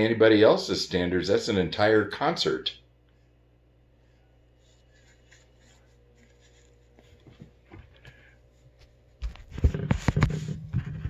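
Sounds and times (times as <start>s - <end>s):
tissue rustling: 4.5s - 11.0s.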